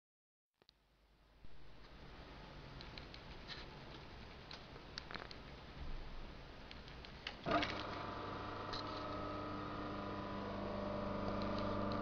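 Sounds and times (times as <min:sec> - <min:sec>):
sewing machine motor humming: 0:07.5 - 0:12.0.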